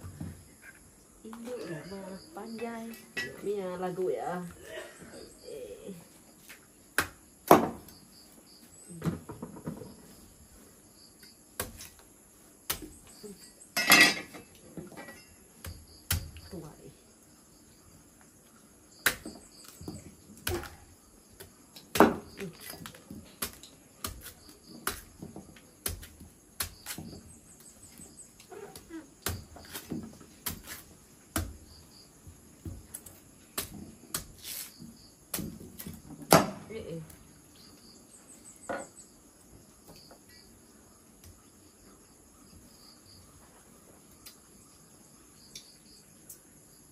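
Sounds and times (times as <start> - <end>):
kitchenware knocking and clattering: 13.8 - 15.3.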